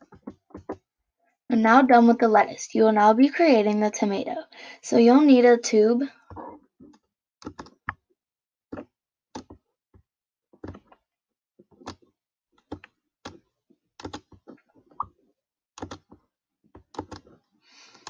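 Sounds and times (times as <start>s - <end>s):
computer clicks and taps: 6.8s - 8.0s, 14.0s - 15.1s, 15.8s - 16.2s, 16.8s - 17.3s.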